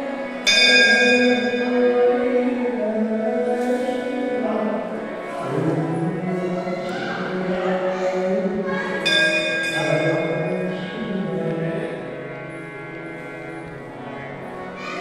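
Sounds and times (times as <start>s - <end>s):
devotional music: 0.0s - 15.0s
temple bell ringing: 0.4s - 2.0s, 8.9s - 11.1s.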